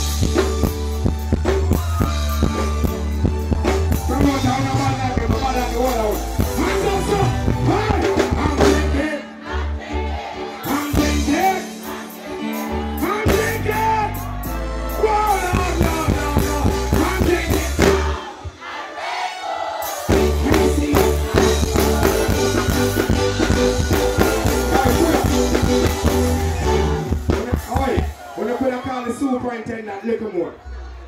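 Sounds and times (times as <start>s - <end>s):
heavy bass dancehall beat: 0.0s - 9.1s, 12.9s - 18.4s, 20.1s - 28.2s
person singing: 1.2s - 9.8s, 10.4s - 14.3s, 15.0s - 18.4s, 20.0s - 23.1s.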